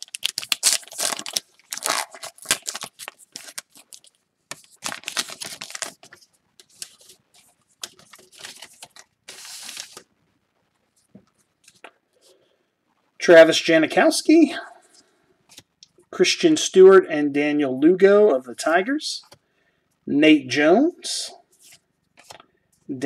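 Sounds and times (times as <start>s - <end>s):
wrapper tearing and crinkling: 0.0s - 7.0s, 7.8s - 10.0s.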